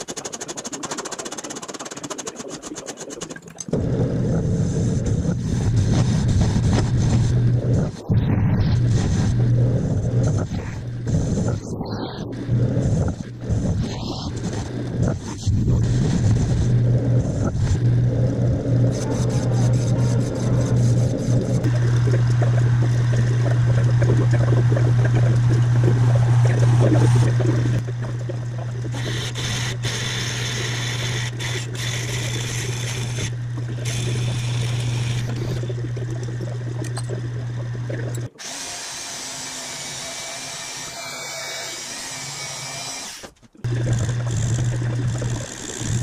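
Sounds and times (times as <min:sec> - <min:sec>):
drill bit boring into metal: 0:38.4 - 0:46.0.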